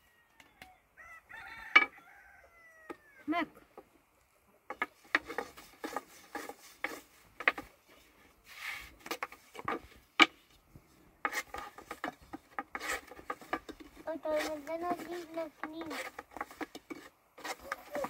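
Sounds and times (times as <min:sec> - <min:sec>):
rolling pin rubbing dough: 0:04.7 - 0:07.7, 0:11.2 - 0:18.0.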